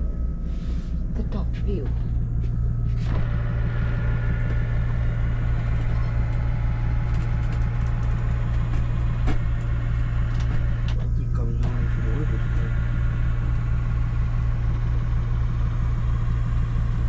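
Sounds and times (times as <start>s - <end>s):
steady low hum: 0.0s - 17.0s
motor whirring: 2.9s - 15.0s.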